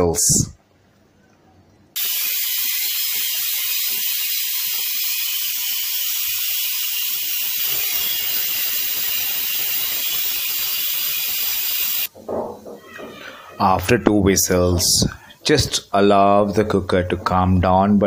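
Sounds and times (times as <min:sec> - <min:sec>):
pressure cooker steam hissing: 0:02.0 - 0:12.1.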